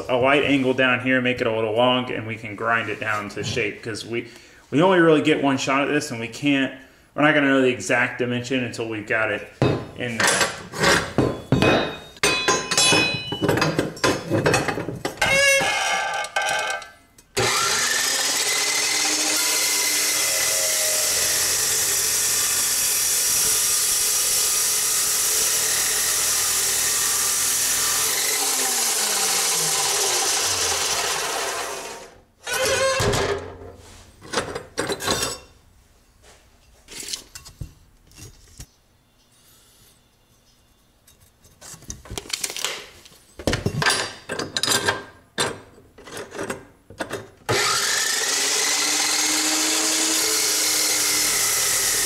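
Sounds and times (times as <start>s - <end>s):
metal clanking: 11.1s - 15.4s
chop saw cutting steel: 17.4s - 32.6s, 47.5s - 52.0s.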